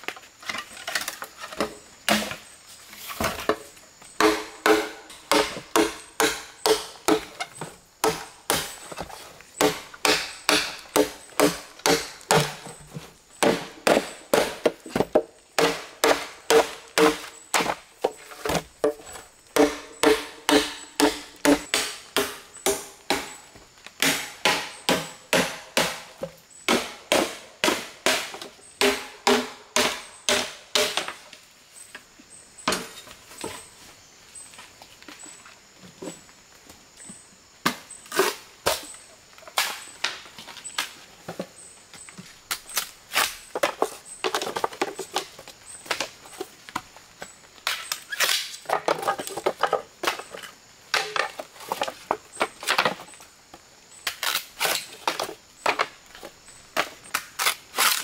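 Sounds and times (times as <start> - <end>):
machete chopping bamboo: 4.2 - 9.0, 9.6 - 19.0, 19.6 - 31.2, 54.0 - 55.9, 56.8 - 58.0.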